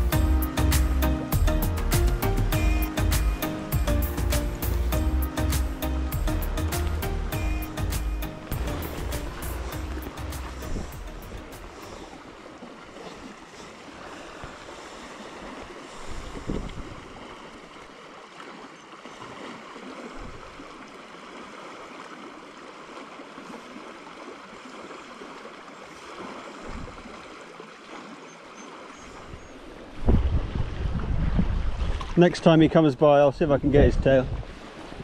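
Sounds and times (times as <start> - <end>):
wind buffeting microphone: 8.6 - 12.0, 15.4 - 17.3, 20.2 - 20.7, 26.6 - 27.2, 29.2 - 32.6, 33.4 - 35.0.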